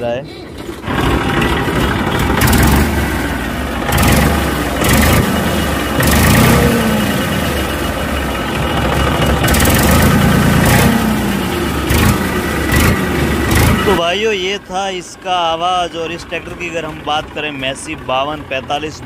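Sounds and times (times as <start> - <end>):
tractor diesel engine idling: 0.0 - 19.0.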